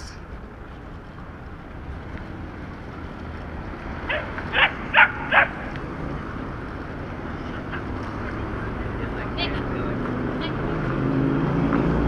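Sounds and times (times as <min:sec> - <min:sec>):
traffic rumble: 0:00.0 - 0:12.0
wind: 0:00.0 - 0:12.0
dog barking: 0:04.1 - 0:05.6.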